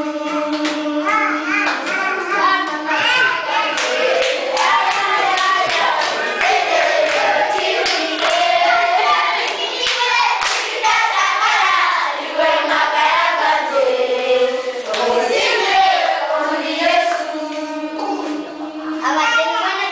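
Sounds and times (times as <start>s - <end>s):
children singing: 0.0s - 19.9s
children clapping hands: 0.5s - 0.8s, 1.5s - 11.8s.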